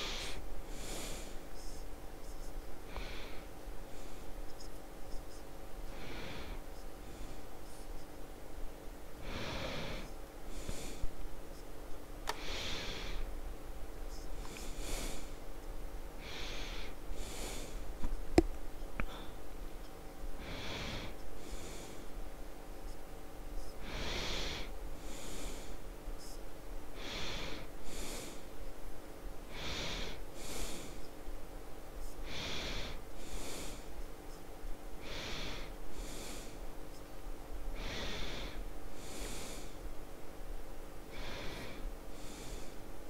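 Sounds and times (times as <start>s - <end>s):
person breathing slowly: 0.0s - 4.7s, 5.8s - 8.0s, 9.1s - 11.2s, 12.3s - 13.4s, 14.1s - 15.5s, 16.2s - 18.1s, 19.0s - 19.5s, 20.4s - 22.3s, 23.7s - 28.7s, 29.4s - 31.2s, 32.0s - 34.1s, 35.0s - 36.7s, 37.7s - 40.0s, 41.0s - 43.0s
faint electrical hum: 0.0s - 43.0s.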